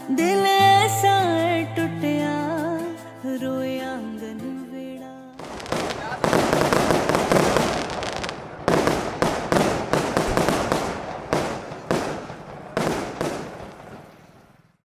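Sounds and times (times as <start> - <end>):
fireworks bangs and crackling: 5.4 - 14.8.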